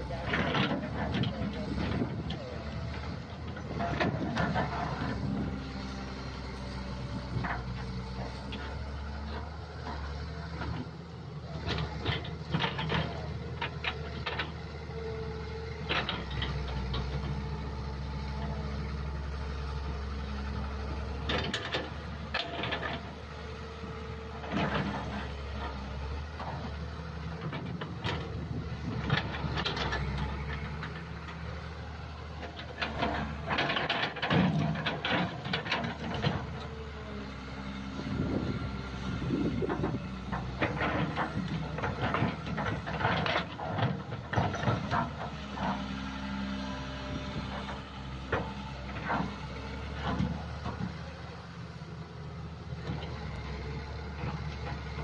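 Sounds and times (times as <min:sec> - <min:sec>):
diesel engine running: 0:00.0 - 0:55.0
excavator bucket clanking: 0:32.4 - 0:36.9, 0:39.2 - 0:46.1.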